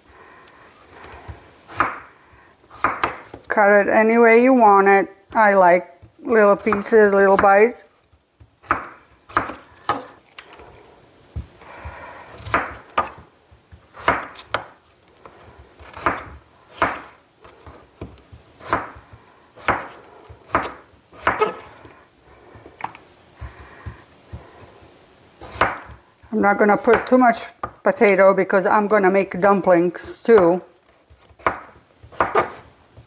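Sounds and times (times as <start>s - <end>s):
knife chopping on wooden board: 1.1s - 2.1s, 2.7s - 3.5s, 8.4s - 10.2s, 11.4s - 14.8s, 15.8s - 21.7s, 25.4s - 26.0s, 30.3s - 33.0s.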